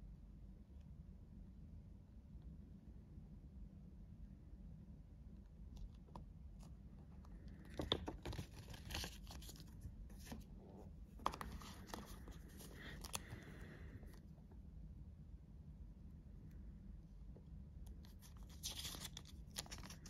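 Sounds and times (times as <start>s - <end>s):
stiff paper crinkling and snapping: 7.6s - 10.4s, 11.2s - 13.7s, 18.0s - 20.0s.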